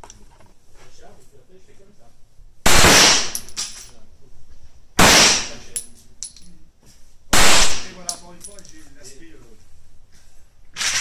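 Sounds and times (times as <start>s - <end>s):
pistol shot echoing: 2.7s - 3.5s, 5.0s - 5.6s, 7.4s - 8.0s
light metallic clinks: 5.7s - 6.6s, 8.0s - 8.9s.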